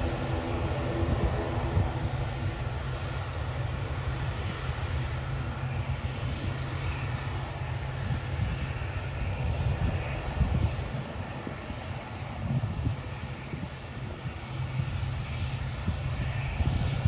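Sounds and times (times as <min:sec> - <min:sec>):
distant aircraft engine rumble: 0:00.0 - 0:17.0
wind buffeting microphone: 0:00.0 - 0:17.0.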